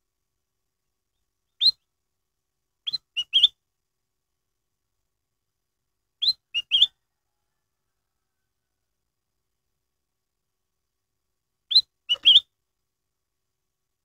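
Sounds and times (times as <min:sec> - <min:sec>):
bird whistling song: 0:01.5 - 0:01.9, 0:02.8 - 0:03.6, 0:06.2 - 0:07.0, 0:11.7 - 0:12.5.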